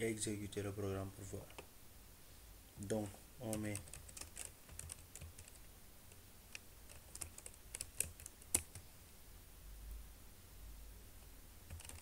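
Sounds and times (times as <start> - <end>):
keyboard keys clicking: 3.4 - 5.6, 6.5 - 8.8, 11.7 - 12.0.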